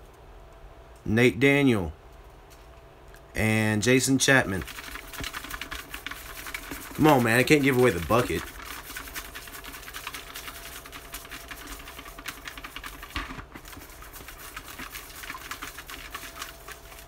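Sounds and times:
paper slips rattling in plastic bucket: 0:04.5 - 0:17.0.

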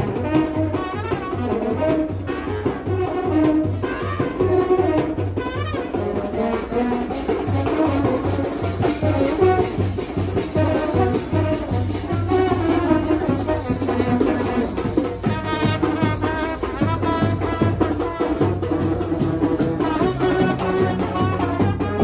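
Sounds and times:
brass band playing: 0:00.0 - 0:22.0
low drumbeat: 0:04.5 - 0:22.0.

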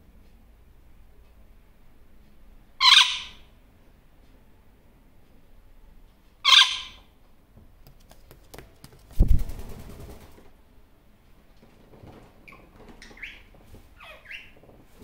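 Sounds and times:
parrot call: 0:02.8 - 0:03.5, 0:06.4 - 0:07.1
parrot wingbeats: 0:07.8 - 0:10.5.

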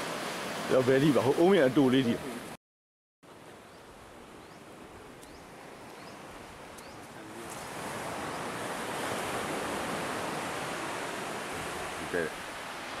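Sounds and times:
small birds chirping: 0:03.6 - 0:07.3.

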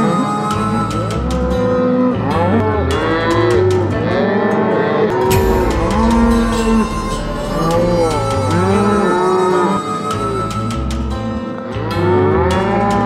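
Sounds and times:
background music with bass line: 0:05.1 - 0:13.0.

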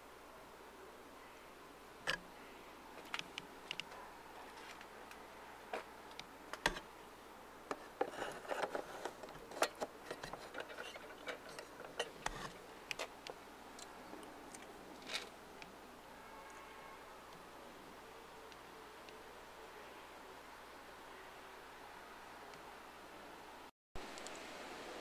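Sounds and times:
rustling: 0:07.8 - 0:13.2.

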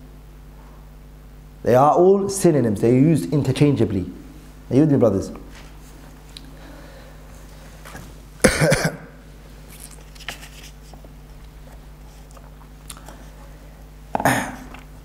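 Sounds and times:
steady low hum: 0:00.0 - 0:15.0
man coughing: 0:08.4 - 0:09.2, 0:14.2 - 0:14.8.

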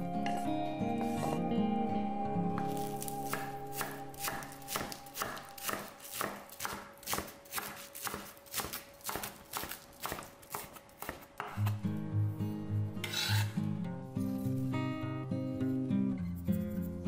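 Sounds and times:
knife chopping on wooden board: 0:02.8 - 0:11.8.

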